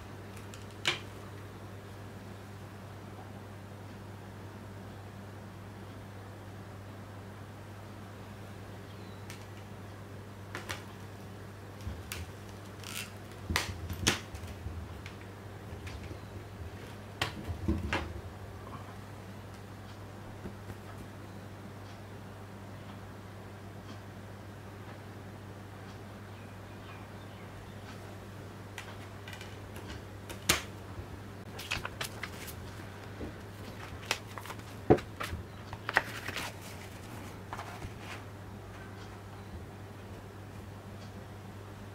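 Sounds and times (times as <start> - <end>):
steady low hum: 0.0 - 41.9
plastic disc case clicks: 33.6 - 36.9.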